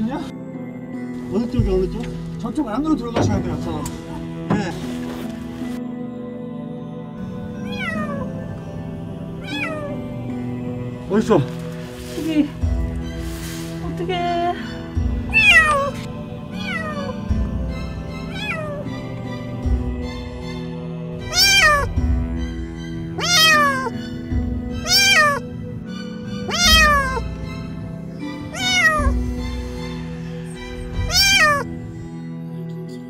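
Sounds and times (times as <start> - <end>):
soft background music: 0.0 - 33.0
kitten meowing: 9.4 - 9.9, 15.3 - 16.0, 16.6 - 17.2, 18.3 - 18.8, 21.2 - 22.0, 23.2 - 24.0, 24.8 - 25.4, 26.5 - 27.2, 28.5 - 29.2, 31.0 - 31.7.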